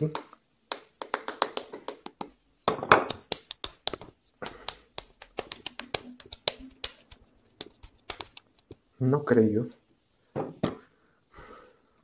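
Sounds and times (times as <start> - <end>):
hands patting damp clay: 0.1 - 8.9.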